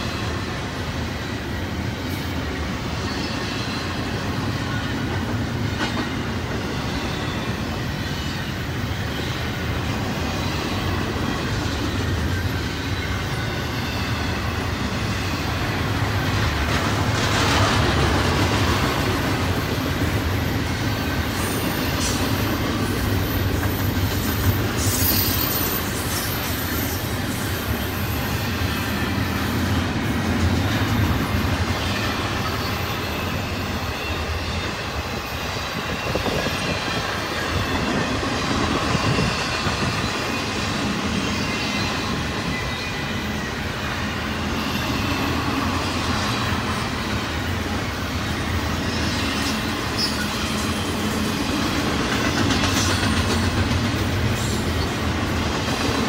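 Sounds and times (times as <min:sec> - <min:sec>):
train wheels rumbling on rails: 0:00.0 - 0:56.0
high wheel squeals: 0:18.7 - 0:51.6.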